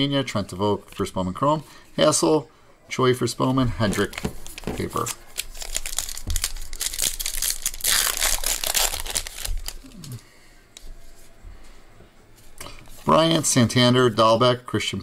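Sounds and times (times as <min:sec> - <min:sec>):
cards rustling: 0:03.8 - 0:10.2
foil wrapper crinkling and tearing: 0:03.9 - 0:10.2.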